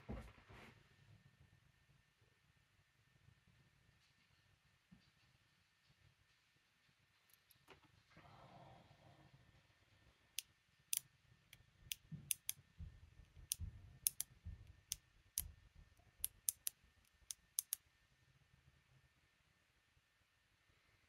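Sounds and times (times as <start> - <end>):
sharp metal clicks: 10.4 - 12.6, 13.4 - 15.5, 16.2 - 17.8.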